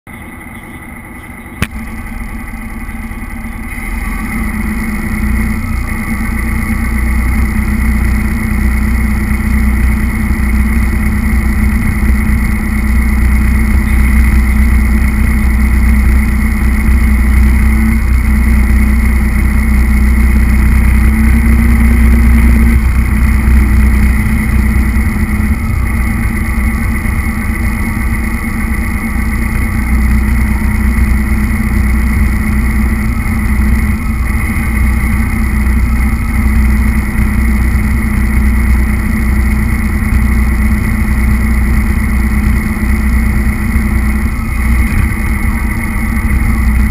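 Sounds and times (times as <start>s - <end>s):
model truck motor whine: 0.1s - 46.9s.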